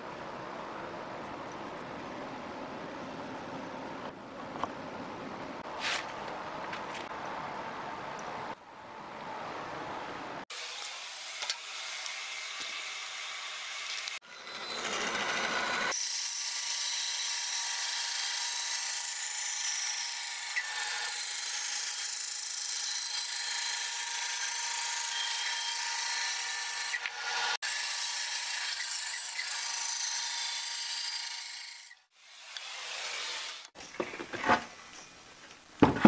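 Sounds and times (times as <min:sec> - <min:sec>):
bandsaw cutting wood: 0:10.5 - 0:33.8.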